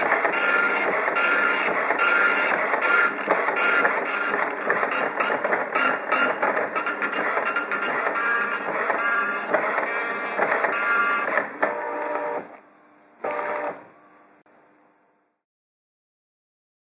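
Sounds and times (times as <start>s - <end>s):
dot matrix print head buzzing: 0.0s - 12.6s, 13.2s - 13.8s
paper-feed motor whining: 0.0s - 12.6s, 13.2s - 13.8s.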